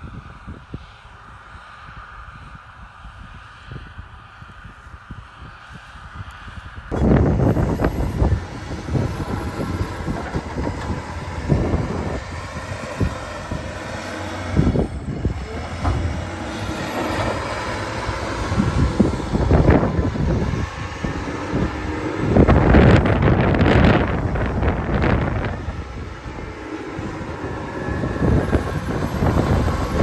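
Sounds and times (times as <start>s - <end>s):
large engine running: 6.9s - 30.0s.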